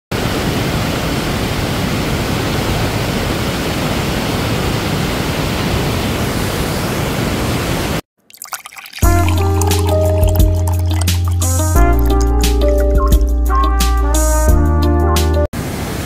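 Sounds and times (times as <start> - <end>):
waterfall and rapids rushing: 0.1 - 8.0, 15.6 - 16.0.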